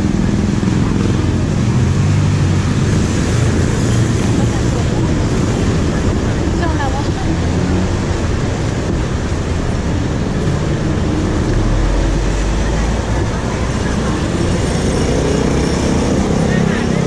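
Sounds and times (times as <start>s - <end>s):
traffic rumble and hiss: 0.0s - 17.0s.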